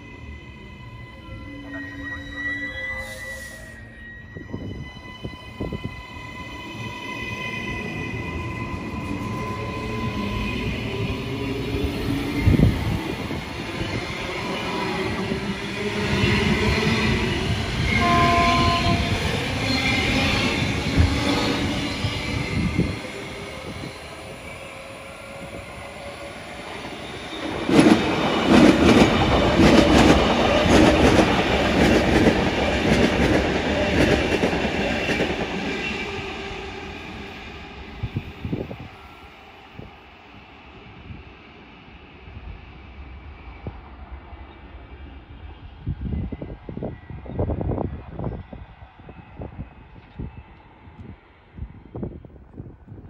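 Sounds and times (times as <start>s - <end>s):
electric train passing: 0.0s - 53.0s
two-note train horn toot: 17.9s - 19.1s.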